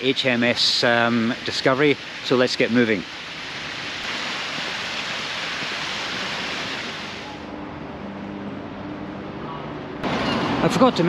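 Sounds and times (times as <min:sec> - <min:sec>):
steady rushing hiss: 0:00.0 - 0:07.6.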